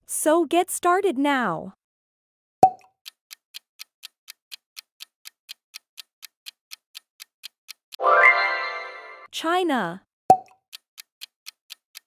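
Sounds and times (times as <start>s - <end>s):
clock ticking: 2.6s - 8.0s, 10.3s - 12.0s.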